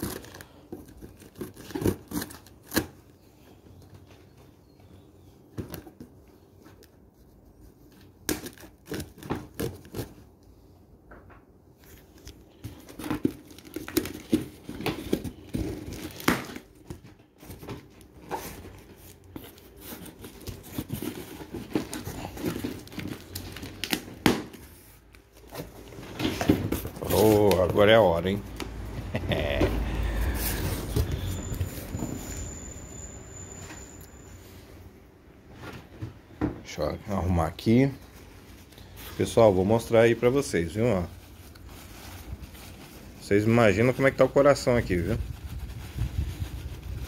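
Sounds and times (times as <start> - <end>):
packing tape tearing: 0.0 - 3.1, 8.2 - 10.2, 12.6 - 17.0, 18.4 - 24.6
cardboard rustling: 11.8 - 32.5, 37.6 - 47.0.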